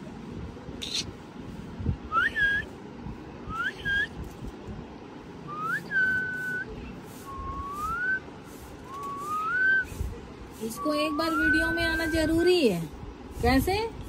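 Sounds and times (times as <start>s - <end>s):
person whistling: 2.1s - 2.7s, 3.5s - 4.1s, 5.5s - 8.2s, 8.9s - 9.9s.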